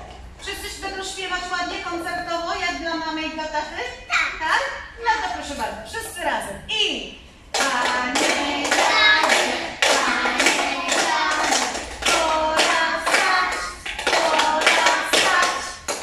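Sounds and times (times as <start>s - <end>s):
woman and children singing: 7.6s - 16.0s.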